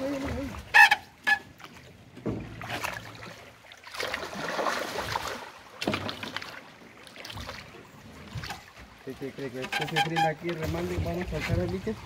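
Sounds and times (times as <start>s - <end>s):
fish splashing in water: 0.0s - 9.1s.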